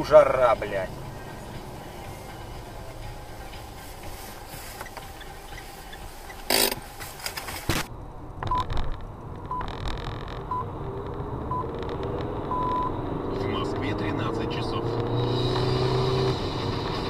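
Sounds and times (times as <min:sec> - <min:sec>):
low vehicle rumble: 0:00.0 - 0:17.0
short electronic beeps: 0:10.5 - 0:10.7, 0:12.5 - 0:13.0.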